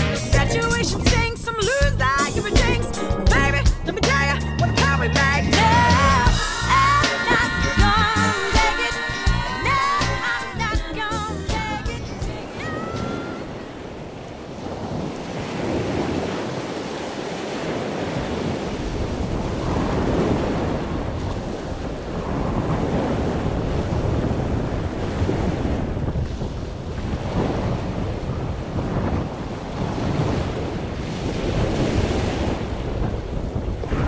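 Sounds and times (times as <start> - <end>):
waves and water rushing: 5.6 - 34.0
wind buffeting microphone: 11.6 - 34.0.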